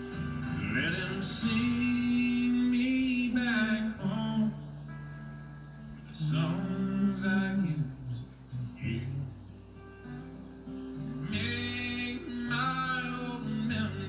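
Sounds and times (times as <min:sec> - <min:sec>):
acoustic guitar and band: 0:00.0 - 0:14.0
man singing long notes: 0:00.5 - 0:04.7, 0:06.1 - 0:09.4, 0:11.2 - 0:14.0.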